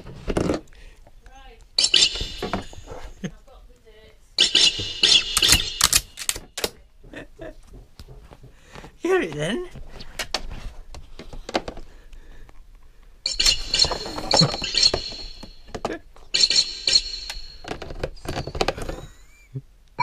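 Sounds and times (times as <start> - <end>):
high steady tone: 1.8 - 2.9, 4.4 - 6.2, 13.3 - 17.8.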